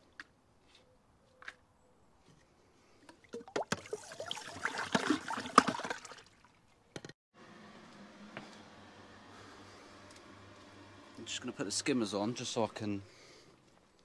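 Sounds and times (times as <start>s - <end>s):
water splashing and sloshing: 3.0s - 6.9s.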